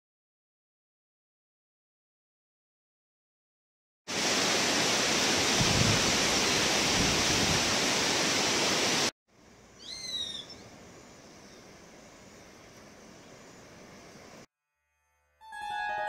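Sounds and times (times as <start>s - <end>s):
river water rushing over rocks: 4.1s - 9.1s
bird whistled call: 9.8s - 10.6s.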